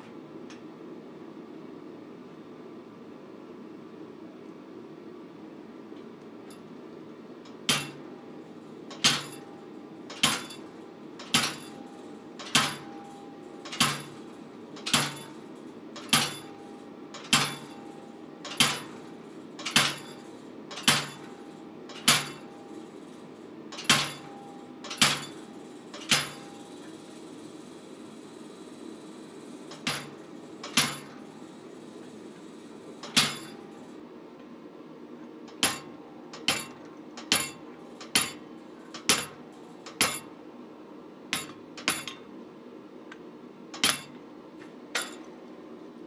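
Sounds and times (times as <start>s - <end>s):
low background hum: 0.0s - 46.0s
hammer striking chisel on steel: 39.0s - 40.3s.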